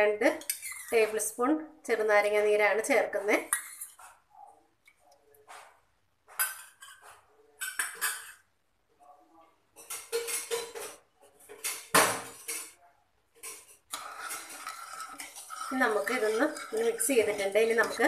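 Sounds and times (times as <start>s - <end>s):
wooden spoon stirring in a pan: 0.3s - 1.3s, 2.6s - 4.3s, 9.7s - 18.0s
kitchen utensils clattering: 9.8s - 18.0s.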